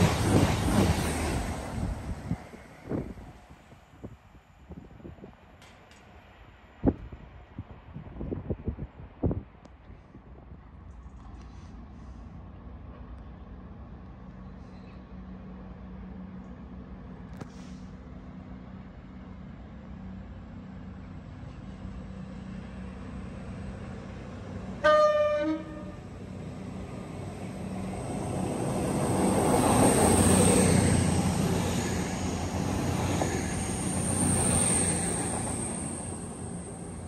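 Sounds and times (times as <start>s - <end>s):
diesel train passing: 0.0s - 9.1s, 10.4s - 37.0s
train horn blast: 24.8s - 26.1s.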